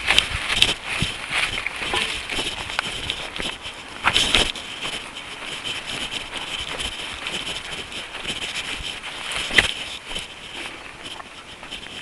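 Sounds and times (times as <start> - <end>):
running footsteps: 0.0 - 12.0
wind on microphone: 0.0 - 12.0.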